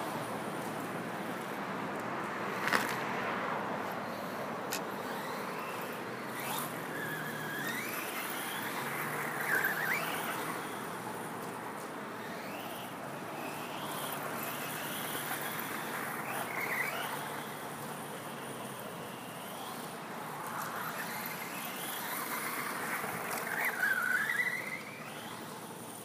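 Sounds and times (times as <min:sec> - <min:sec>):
electric motor whining: 0:05.0 - 0:11.6.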